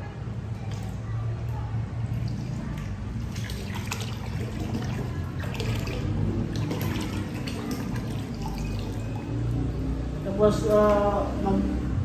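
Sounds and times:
liquid pouring into a bucket of water: 0:02.0 - 0:11.4.

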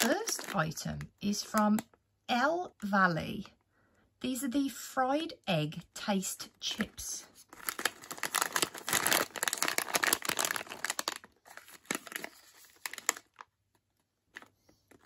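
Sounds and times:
crisp packet crinkling: 0:00.0 - 0:01.9, 0:07.4 - 0:15.0.

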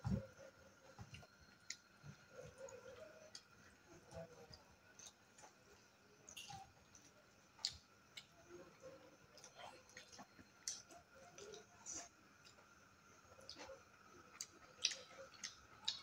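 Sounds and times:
people eating and chewing: 0:00.0 - 0:16.0
mouth clicks and wet smacks: 0:06.3 - 0:08.3, 0:09.4 - 0:12.7, 0:14.4 - 0:16.0.

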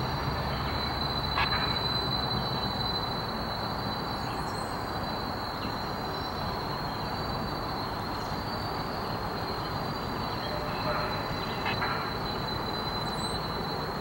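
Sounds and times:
diesel locomotive engine rumble: 0:00.0 - 0:14.0.

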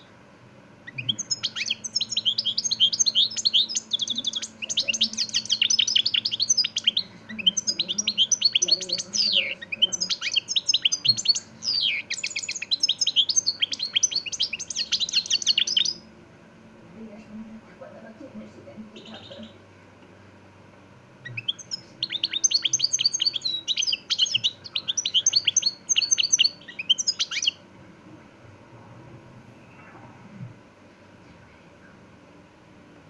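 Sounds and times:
goldfinch twittering song: 0:00.9 - 0:16.1, 0:21.2 - 0:27.6.

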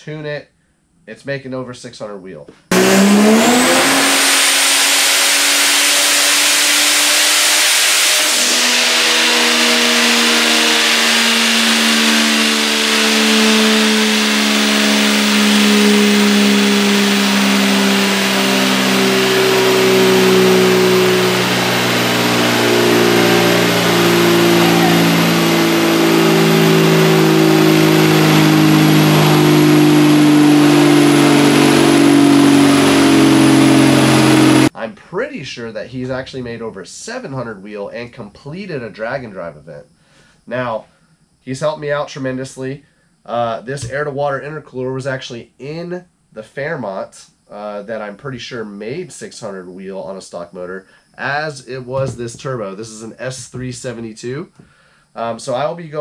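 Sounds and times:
faint high whine: 0:00.0 - 0:56.0
engine running under load: 0:02.7 - 0:34.7.

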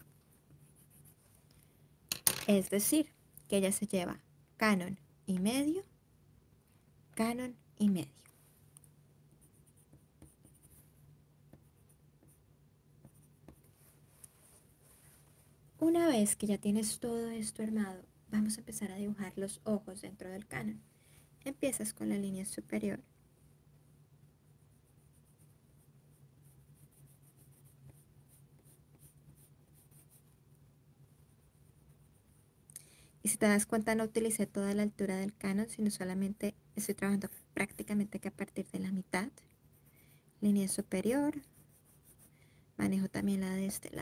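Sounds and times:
steady low hum: 0:00.0 - 0:44.0
pencil scratching on paper: 0:00.1 - 0:01.2, 0:09.4 - 0:12.4, 0:24.4 - 0:30.4, 0:31.1 - 0:32.6, 0:41.0 - 0:42.3.

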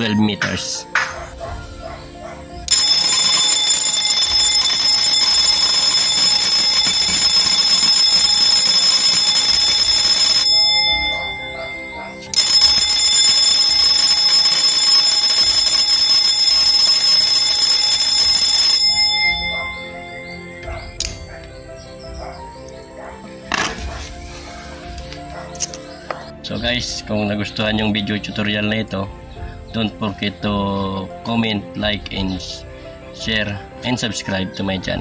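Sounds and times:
electric alarm bell ringing: 0:02.7 - 0:21.4.

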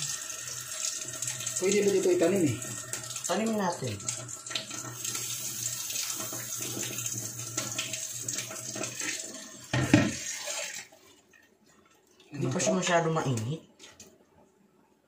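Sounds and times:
water running from a tap: 0:00.0 - 0:11.4.

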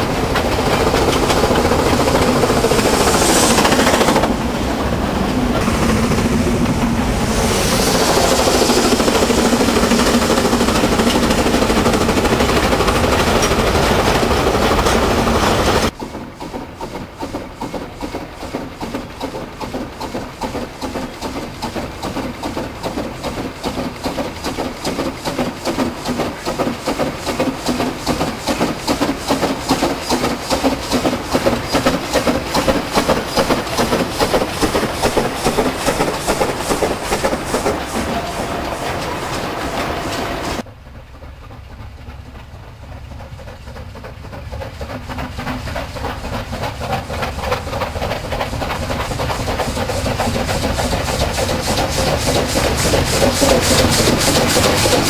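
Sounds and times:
steam locomotive approaching: 0:00.0 - 0:55.0
wagon wheels clattering: 0:41.3 - 0:55.0.

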